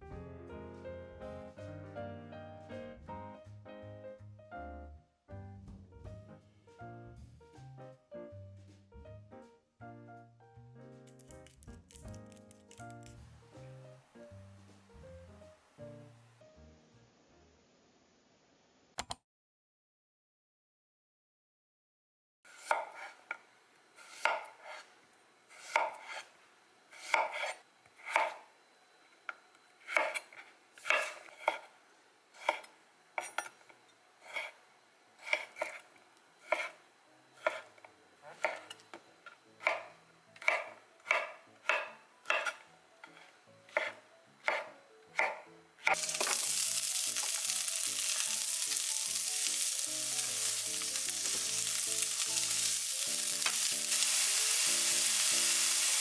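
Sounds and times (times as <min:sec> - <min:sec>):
knife slicing on wooden board: 0:29.9 - 0:31.7, 0:35.2 - 0:35.8, 0:40.4 - 0:45.4
food sizzling in hot pan: 0:46.0 - 0:56.0.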